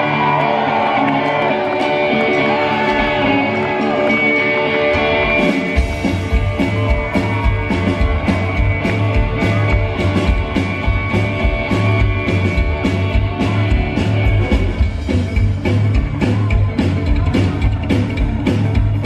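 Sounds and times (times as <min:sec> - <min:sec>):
electric guitar: 0:00.0 - 0:19.0
drums keeping a driving beat: 0:01.6 - 0:19.0
upright double bass: 0:05.0 - 0:19.0.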